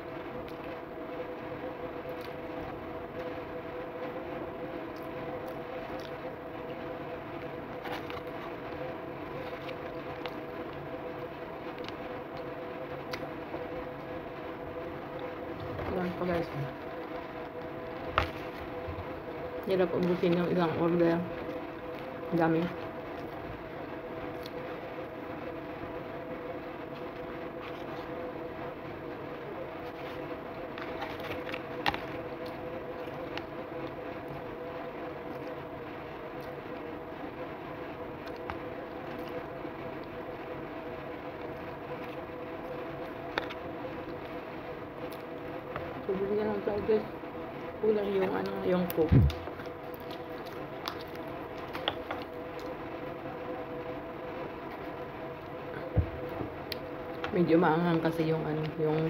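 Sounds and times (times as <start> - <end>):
droning background hum: 0.0 - 59.0
person eating crunchy fries: 7.4 - 12.5, 29.1 - 35.6, 49.3 - 52.9.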